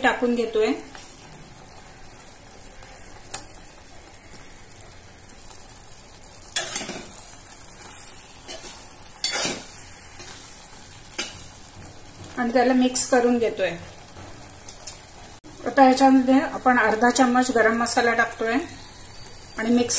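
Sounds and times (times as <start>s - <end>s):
simmering gravy hiss: 0.0s - 19.9s
ladle scraping metal pot: 8.5s - 10.4s.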